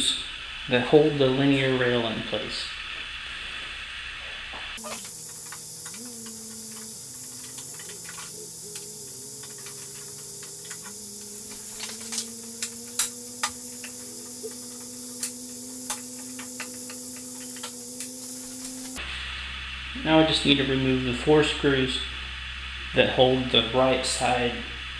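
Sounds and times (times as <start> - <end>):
faint hum: 0.0 - 24.9
steady hiss: 0.0 - 24.9
tools clicking and tapping: 4.8 - 19.0.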